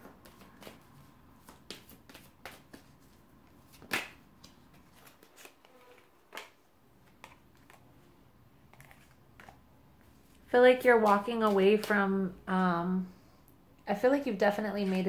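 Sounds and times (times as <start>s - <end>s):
cards being shuffled: 1.5s - 7.9s, 8.7s - 9.6s
sharp card snap: 3.8s - 4.2s.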